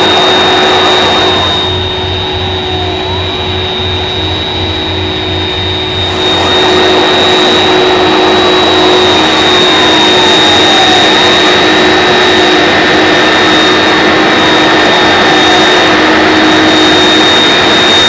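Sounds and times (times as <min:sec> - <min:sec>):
jet engines running: 0:00.0 - 0:18.0.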